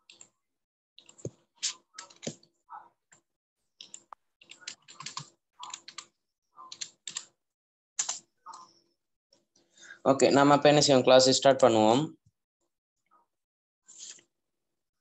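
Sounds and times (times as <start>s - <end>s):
computer keyboard typing: 1.0s - 2.5s, 3.8s - 7.3s, 8.0s - 8.7s.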